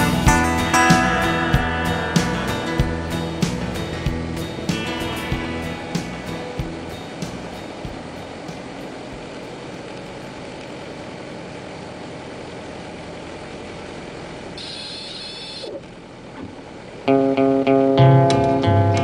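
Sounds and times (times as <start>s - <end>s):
guitar music: 0.0s - 11.0s, 16.4s - 19.0s
light aircraft cockpit noise: 0.0s - 19.0s
high-pitched tone: 14.6s - 15.7s.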